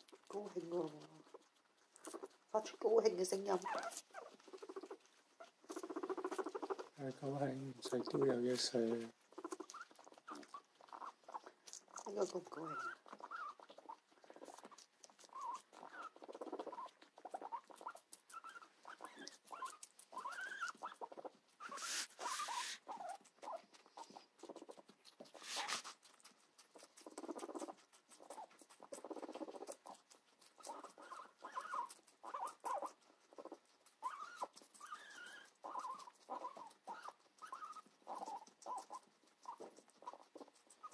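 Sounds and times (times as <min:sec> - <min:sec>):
guinea pig squeaky calls: 0:00.0 - 0:40.9
guinea pigs chewing crunchily: 0:00.0 - 0:40.9
brief hissing noise: 0:21.8 - 0:22.8.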